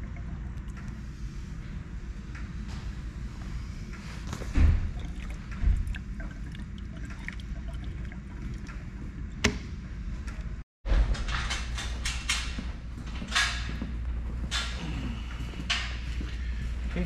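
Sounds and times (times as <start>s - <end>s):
gasoline trickling: 4.3s - 9.5s.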